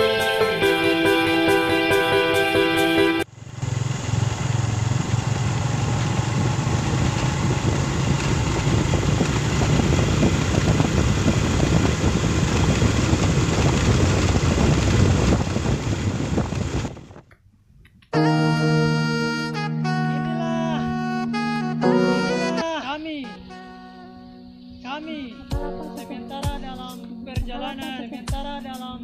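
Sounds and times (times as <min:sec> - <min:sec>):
music: 0:00.0 - 0:03.2, 0:18.2 - 0:29.0
motorcycle engine running: 0:03.2 - 0:17.3.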